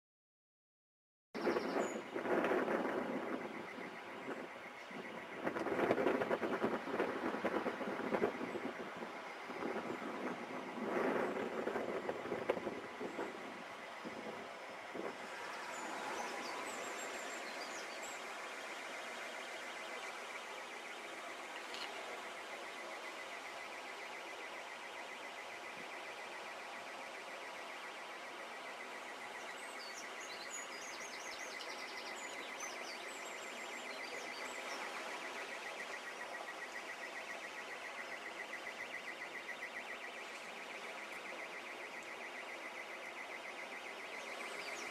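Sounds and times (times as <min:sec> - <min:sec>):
birds chirping: 0:01.4 - 0:44.9
floodwater rushing: 0:02.1 - 0:30.8, 0:31.4 - 0:44.9.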